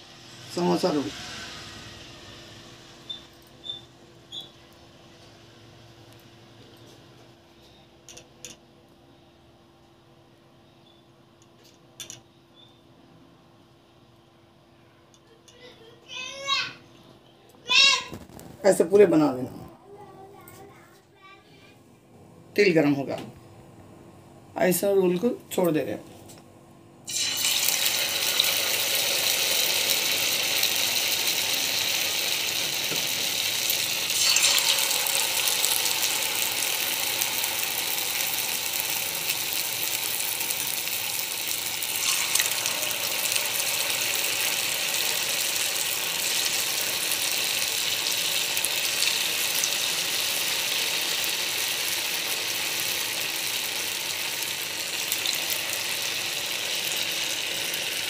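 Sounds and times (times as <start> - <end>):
oil sizzling in frying pan: 27.1 - 58.0.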